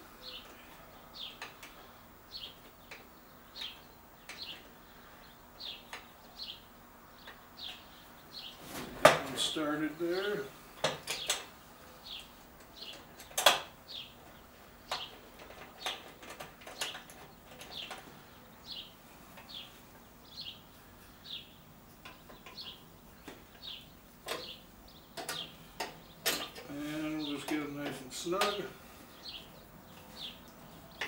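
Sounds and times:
bird chirping: 0:00.0 - 0:31.0.

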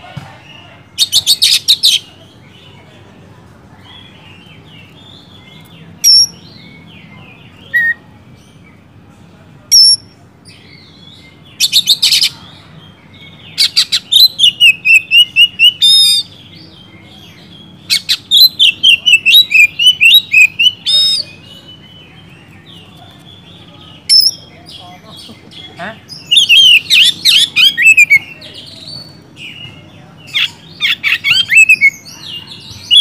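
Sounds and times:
bird singing loudly: 0:06.0 - 0:06.7, 0:13.5 - 0:16.8, 0:17.8 - 0:22.7, 0:24.0 - 0:24.8, 0:26.0 - 0:33.0.

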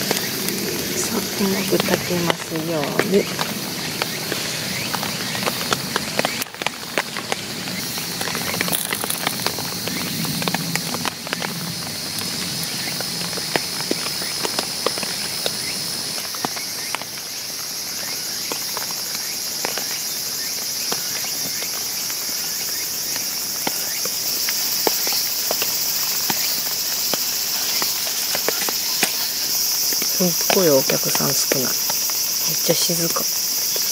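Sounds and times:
high-pitched insect chorus: 0:00.0 - 0:33.9.

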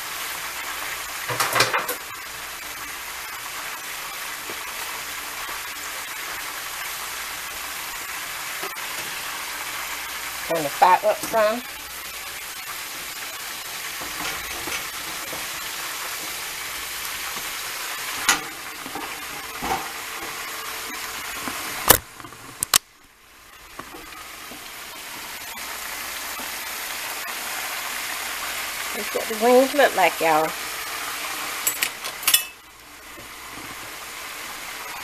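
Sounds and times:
chicken deep-frying in oil: 0:00.0 - 0:35.0
metal tongs clacking on pot: 0:31.6 - 0:32.6.

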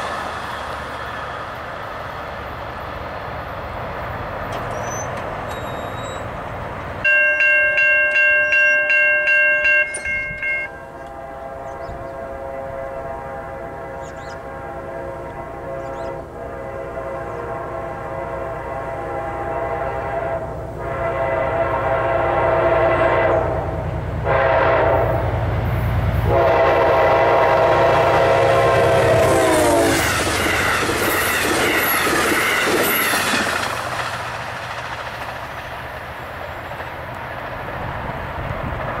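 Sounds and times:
train cars rushing and clattering: 0:00.0 - 0:39.0
locomotive air horn blasts: 0:07.0 - 0:25.4, 0:26.1 - 0:31.8.

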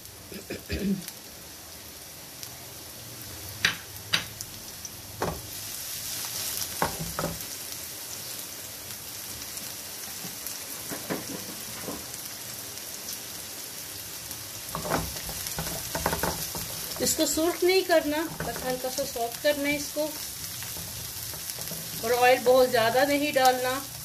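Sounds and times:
onions sizzling in a frying pan: 0:00.0 - 0:24.0
wooden spatula scraping a pan: 0:14.7 - 0:23.0.

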